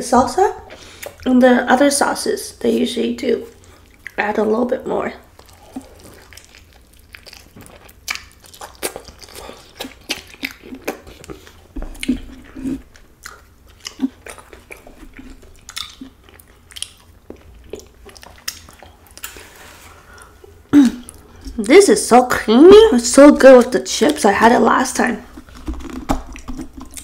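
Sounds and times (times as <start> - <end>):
close chewing: 5.2 - 21.7, 25.2 - 27.0
wet mouth clicks and smacks: 5.4 - 12.2, 13.2 - 19.4, 25.4 - 27.0.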